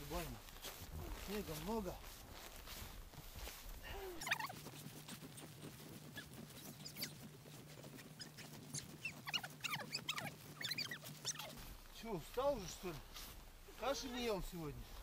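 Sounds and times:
high squeaky shovel scrapes: 0:07.9 - 0:11.6.

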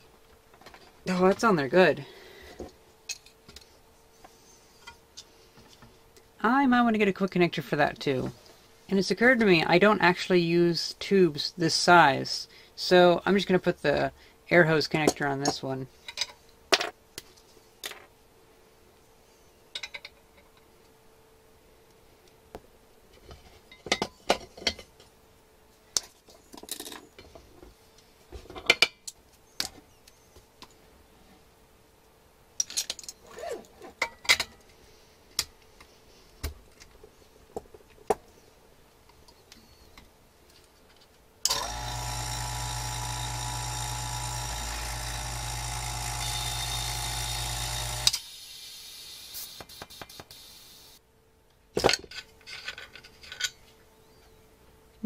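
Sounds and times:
vacuum pump humming: 0:41.5 - 0:48.2.

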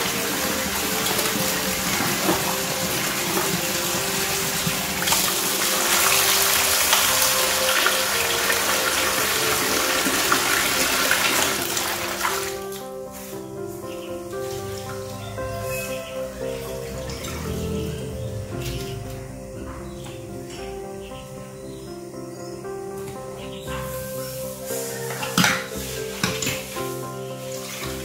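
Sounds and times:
tap water pouring into metal basin: 0:00.0 - 0:12.7
background music: 0:00.0 - 0:28.0.

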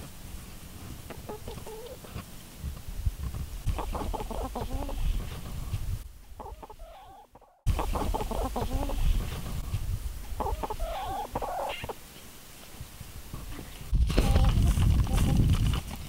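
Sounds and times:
hens clucking: 0:00.8 - 0:02.8, 0:03.6 - 0:12.3, 0:13.6 - 0:15.5.

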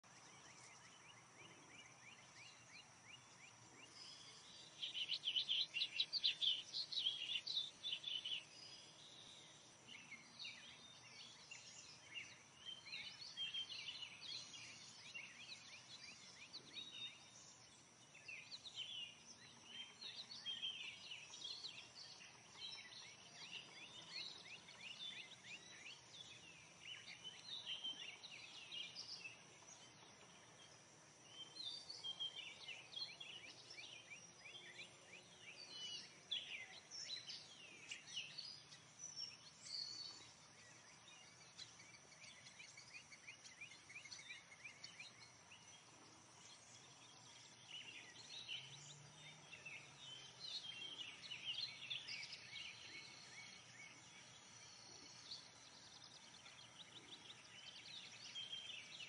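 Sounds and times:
bird singing: 0:00.0 - 0:59.0.

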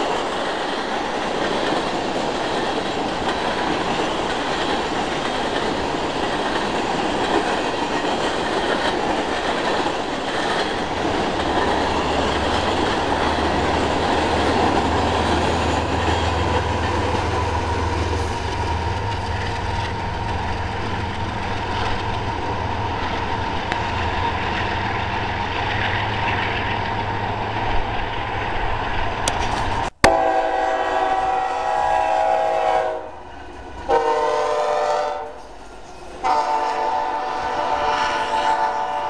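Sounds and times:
diesel locomotive drone: 0:00.0 - 0:39.0
train wheels clattering on rails: 0:00.0 - 0:39.0.

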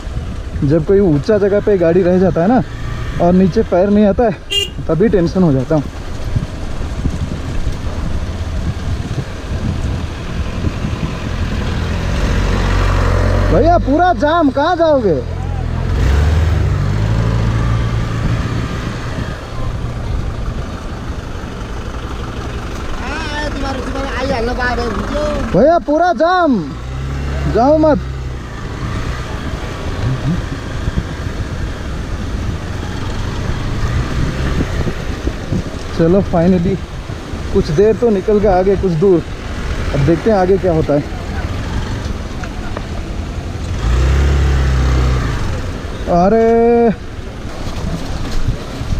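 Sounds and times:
motorcycle engine at low speed: 0:00.0 - 0:15.2
bus and jeep engines: 0:00.0 - 0:48.9
low engine hum: 0:04.4 - 0:25.7, 0:26.4 - 0:48.9.

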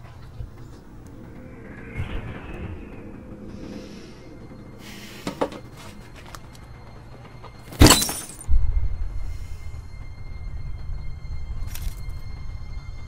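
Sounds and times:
dark film score: 0:00.0 - 0:13.0
deep low boom: 0:00.3 - 0:04.9
glassy crash: 0:07.7 - 0:08.5.

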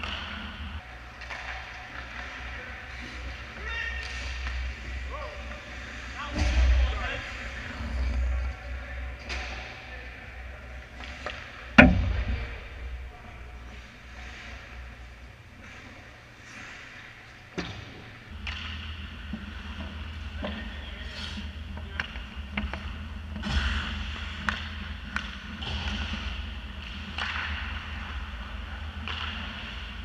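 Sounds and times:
sticks and puck clacking: 0:00.0 - 0:05.1, 0:17.6 - 0:30.0
low rumble: 0:02.6 - 0:16.4.

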